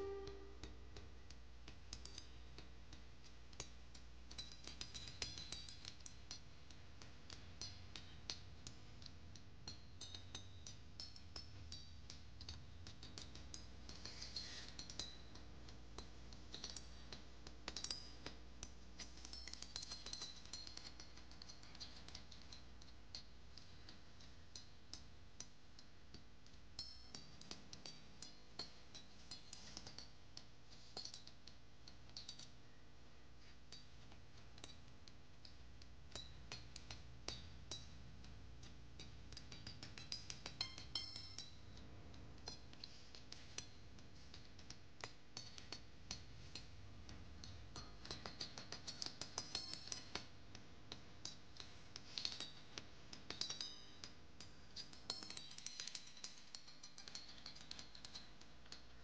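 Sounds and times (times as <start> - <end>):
faint high chirps: 0.0 - 0.9
low hum: 0.0 - 1.1.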